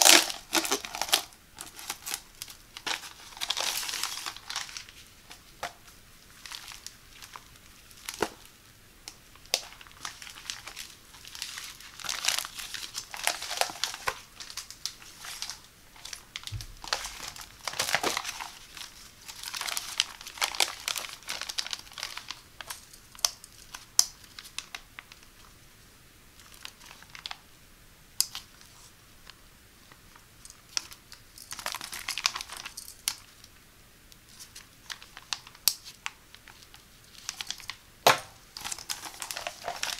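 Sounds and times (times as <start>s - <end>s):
plastic tearing: 0.0s - 5.8s, 6.4s - 8.5s, 9.4s - 25.3s, 30.7s - 33.3s, 34.3s - 39.9s
plastic bags crinkling: 0.0s - 8.5s, 9.1s - 25.3s, 30.4s - 33.4s, 34.3s - 39.9s.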